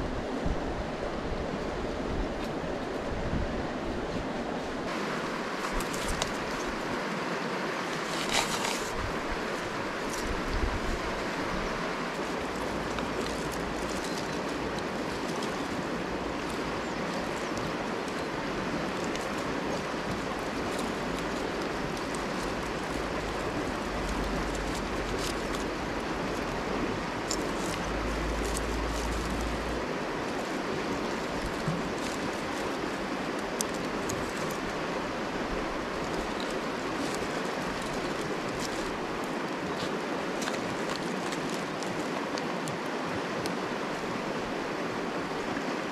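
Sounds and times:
river flowing over stones: 0.0 - 45.9
faint clicks of dry sticks: 5.5 - 6.8, 12.0 - 35.2, 35.8 - 43.6.

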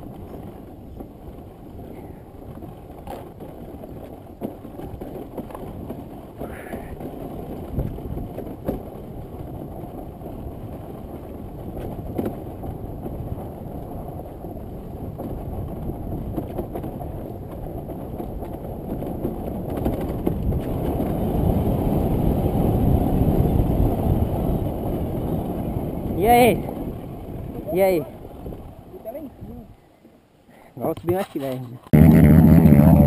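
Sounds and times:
dirt bike engine rumble: 31.8 - 33.0.

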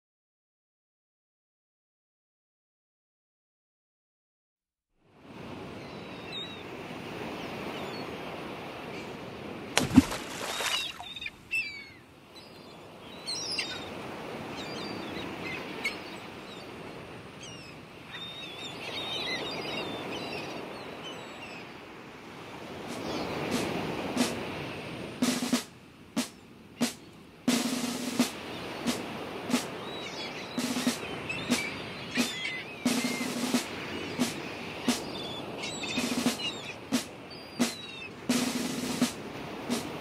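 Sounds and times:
waves washing ashore: 5.1 - 40.0
birds calling: 9.8 - 21.8, 26.2 - 40.0.

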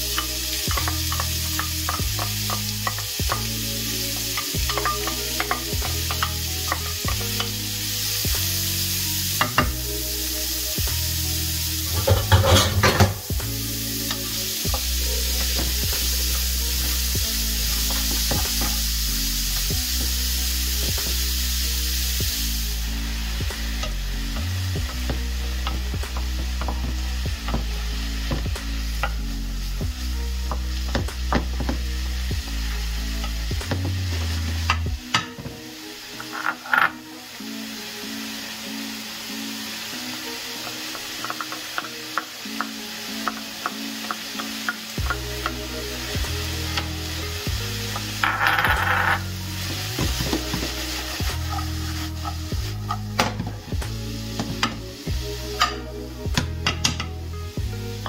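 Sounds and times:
background music with bass line: 0.0 - 58.0
onion sizzling in a frying pan: 0.0 - 58.0
wooden spatula scraping a pan: 11.9 - 13.3, 47.9 - 54.8.

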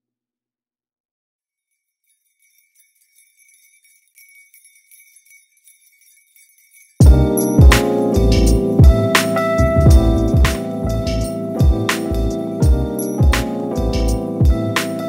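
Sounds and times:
high bell-like tinkling: 1.6 - 8.6
loud music with heavy beat: 7.0 - 15.0.

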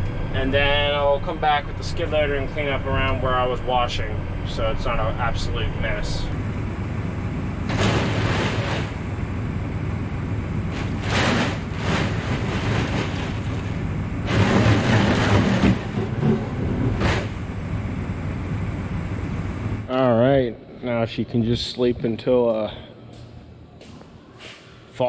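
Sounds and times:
low engine hum: 0.0 - 25.0
hose water drumming on windows: 10.7 - 16.4.

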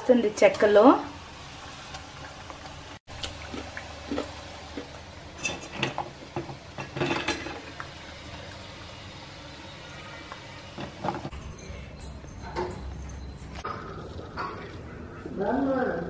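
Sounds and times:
hot oil bubbling and hissing: 0.0 - 11.3
metal utensils clinking on steel: 5.4 - 7.7, 10.8 - 13.7.

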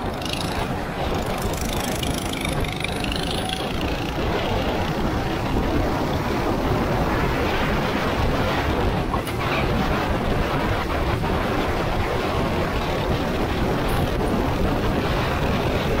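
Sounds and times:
go-kart engine running: 0.0 - 8.9, 13.0 - 16.0
wind on microphone: 0.0 - 16.0.

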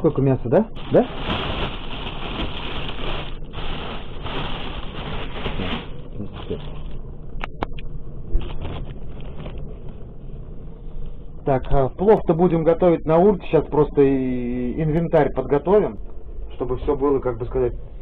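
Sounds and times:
plastic bag rustling: 0.7 - 7.0, 8.4 - 9.9.

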